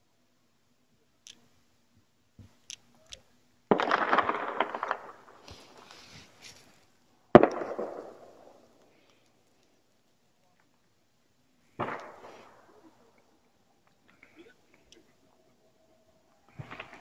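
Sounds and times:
firecracker sharp bang: 3.7 - 5.8, 7.4 - 8.7, 11.8 - 12.8
firecrackers crackling pops: 3.7 - 9.8, 11.7 - 15.0, 16.5 - 17.0.

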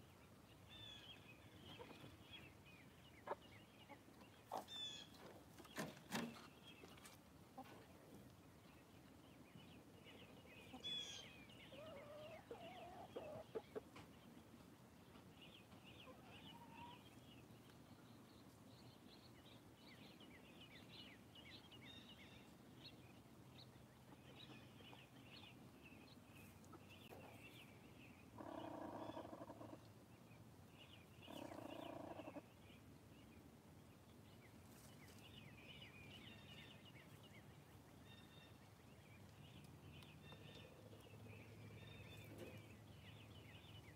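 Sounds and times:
drawn-out hen calls: 10.2 - 14.1, 15.6 - 17.3, 28.2 - 30.0, 31.1 - 32.6
hens vocalising: 31.3 - 32.5.

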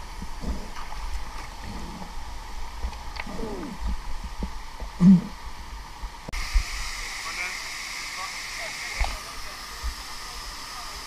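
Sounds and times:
river water sloshing and gurgling: 0.0 - 4.8
waterfall rushing: 6.4 - 11.0.

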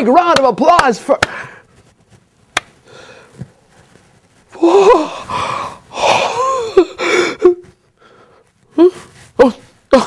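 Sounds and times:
man wheezing gasps: 4.6 - 8.4.

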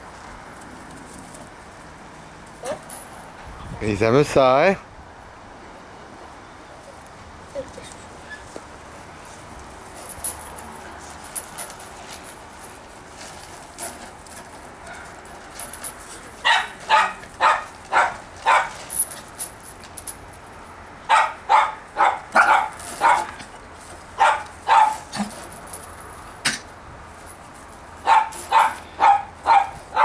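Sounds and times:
small dogs yapping: 16.4 - 18.8, 21.1 - 23.4, 24.2 - 25.3, 28.0 - 30.0.

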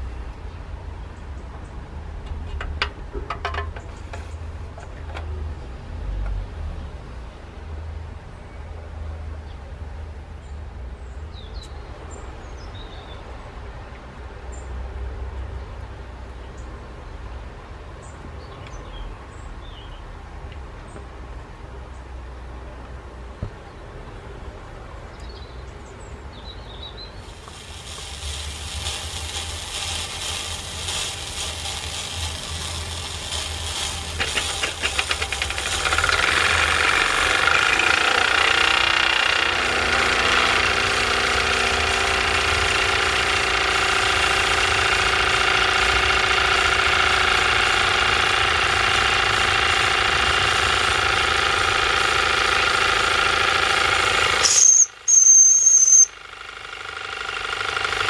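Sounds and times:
steam hissing: 27.2 - 56.1
toy steam engine chuffing: 27.2 - 58.0.

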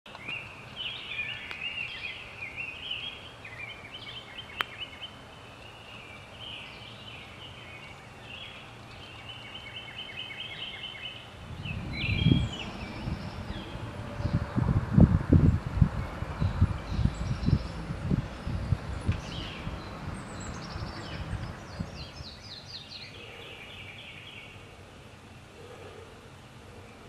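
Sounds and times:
birds chirping and trilling: 0.1 - 27.0
low rumble: 11.4 - 22.5.

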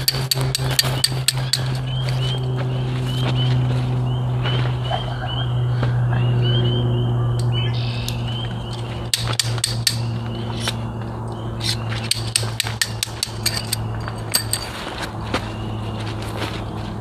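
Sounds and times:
metal tent stakes clinking: 0.0 - 2.4, 8.6 - 15.2
low hum: 0.0 - 17.0.

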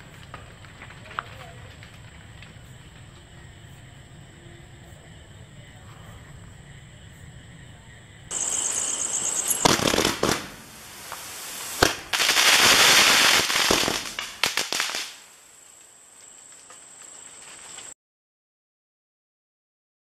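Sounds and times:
firework bangs: 0.0 - 4.2, 8.3 - 17.8
firework crackling: 0.0 - 5.6, 8.3 - 18.0
firework hissing rush: 8.3 - 16.5.

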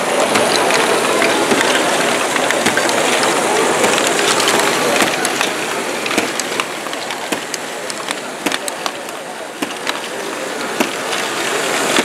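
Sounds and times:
motor-driven gears ticking: 0.0 - 12.0
plastic balls clattering: 0.0 - 12.0
steady background din: 0.0 - 12.0.

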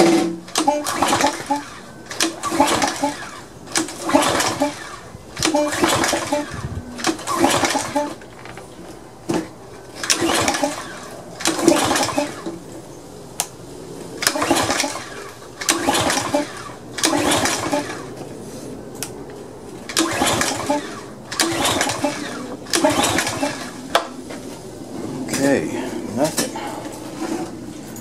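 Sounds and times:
recoil cord yanks: 0.1 - 8.6, 10.0 - 12.6, 14.2 - 18.0, 19.9 - 23.8
engine spinning over briefly: 0.6 - 8.2, 10.0 - 12.5, 14.2 - 18.2, 19.9 - 23.8.

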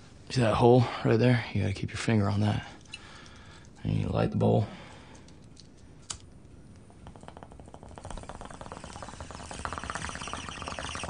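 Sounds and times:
water bubbling in a bong: 7.0 - 11.0.

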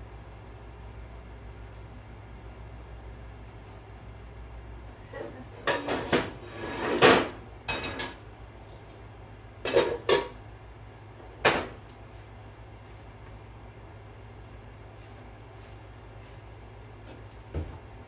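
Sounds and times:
cookware clattering on stovetop: 5.6 - 8.2, 9.7 - 10.4.

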